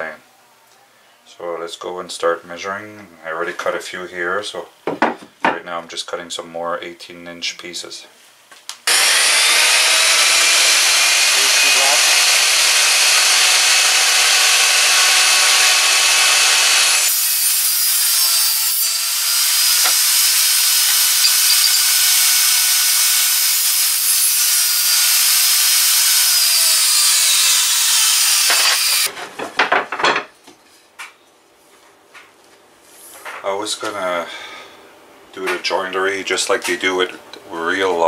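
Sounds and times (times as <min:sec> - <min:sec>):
table saw cutting wood: 0:08.9 - 0:29.1.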